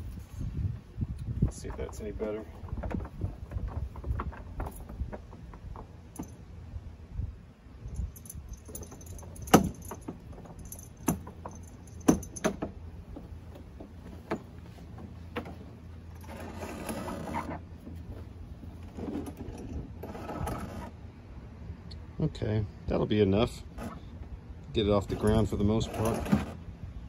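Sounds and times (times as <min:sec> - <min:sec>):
rigging hardware clicks: 0:01.2 - 0:06.5, 0:07.9 - 0:16.6
rope rasping: 0:13.8 - 0:21.0.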